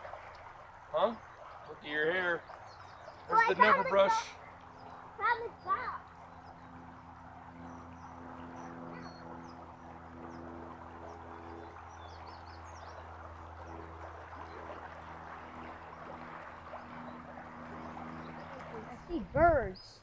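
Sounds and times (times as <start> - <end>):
river water rushing: 0.0 - 7.5, 9.0 - 19.3
low hum: 0.0 - 20.0
small birds chirping: 0.9 - 20.0.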